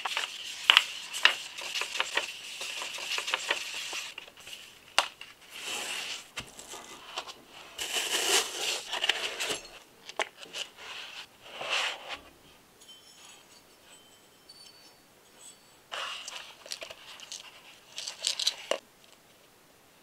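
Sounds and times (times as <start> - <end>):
packaging rustling and scraping: 0.0 - 12.3, 15.9 - 18.8
light metallic clinks: 12.8 - 15.9.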